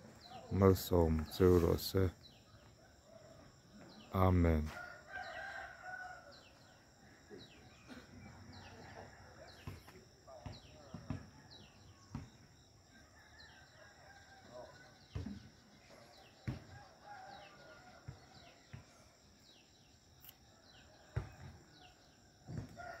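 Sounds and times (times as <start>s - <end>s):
small birds chirping: 0.0s - 22.9s
rooster crowing: 4.7s - 6.8s, 12.9s - 15.2s, 16.4s - 18.8s, 22.6s - 23.0s.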